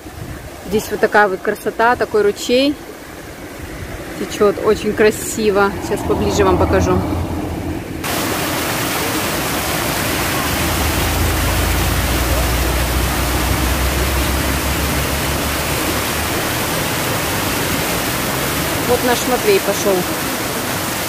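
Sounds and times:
stream water rushing over rocks: 0.0s - 21.0s
low rumble: 3.4s - 8.4s, 9.9s - 17.4s.

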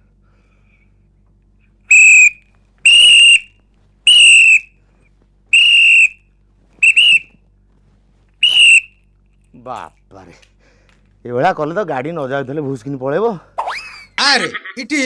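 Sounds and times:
high-pitched whistle blasts: 1.9s - 3.5s, 4.1s - 4.7s, 5.5s - 6.2s, 6.8s - 7.3s, 8.4s - 8.9s.

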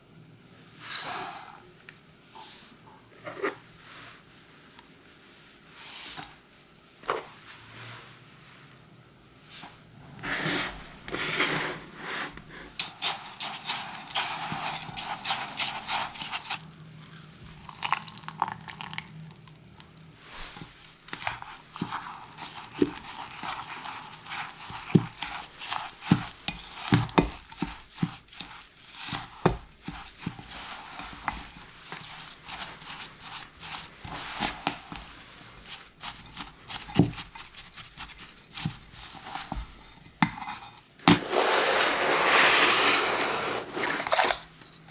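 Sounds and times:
fork scraping through sugar: 10.2s - 18.9s, 19.8s - 39.7s, 40.5s - 44.5s.

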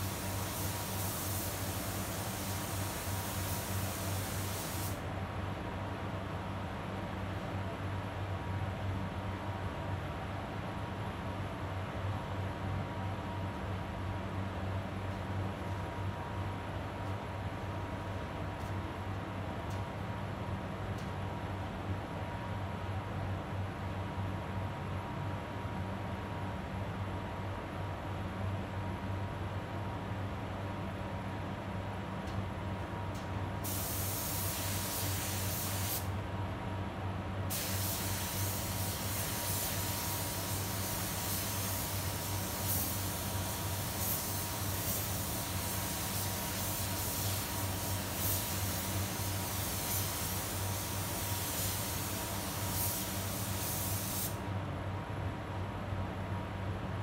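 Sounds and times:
paint spray gun hissing: 0.0s - 5.0s, 33.6s - 36.1s, 37.5s - 54.4s.

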